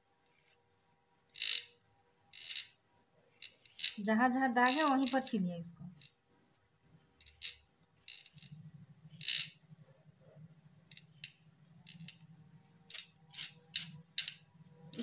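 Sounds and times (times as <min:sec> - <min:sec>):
low steady hum: 0:04.0 - 0:15.0.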